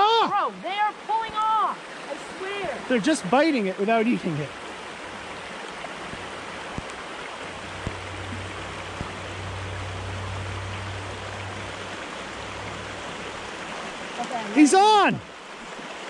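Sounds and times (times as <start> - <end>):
stream running over rocks: 0.0 - 16.0
faint clicks: 5.7 - 7.0
low rumble: 7.5 - 13.9.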